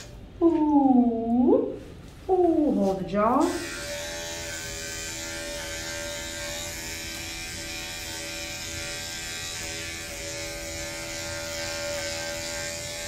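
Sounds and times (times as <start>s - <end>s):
pet clipper buzzing: 3.4s - 13.0s.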